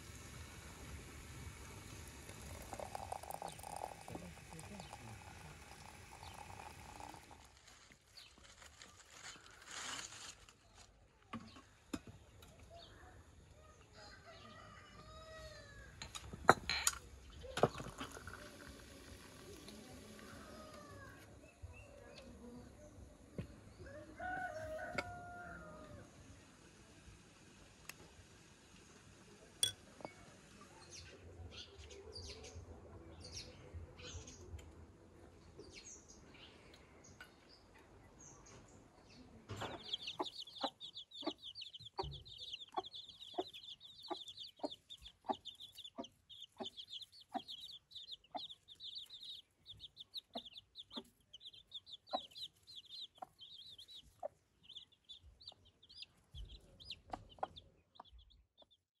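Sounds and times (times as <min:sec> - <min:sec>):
chicks peeping: 0:39.2 - 0:58.8
hen clucking: 0:39.5 - 0:58.4.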